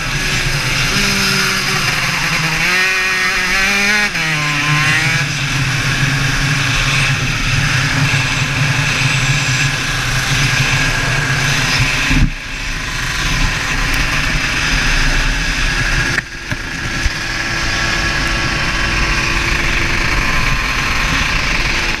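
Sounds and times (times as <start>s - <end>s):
kart engine running: 0.0s - 22.0s
wind on microphone: 4.8s - 22.0s.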